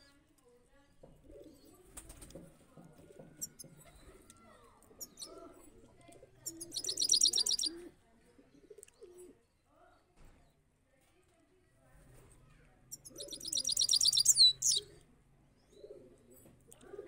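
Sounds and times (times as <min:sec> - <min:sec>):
pigeon cooing: 0:04.9 - 0:09.4, 0:13.0 - 0:15.0, 0:15.7 - 0:17.0
goldfinch chirps and trill: 0:06.5 - 0:07.7, 0:12.9 - 0:14.8.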